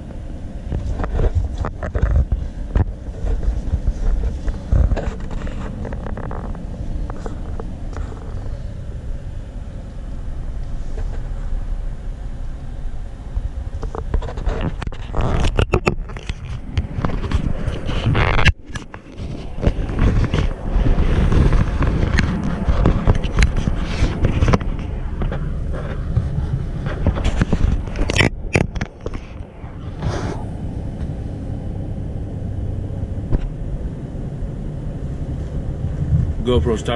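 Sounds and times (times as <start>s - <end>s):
car cabin rumble: 0.0s - 36.9s
wind buffeting microphone: 0.0s - 36.9s
scraping and knocking: 0.7s - 8.4s, 13.8s - 30.1s.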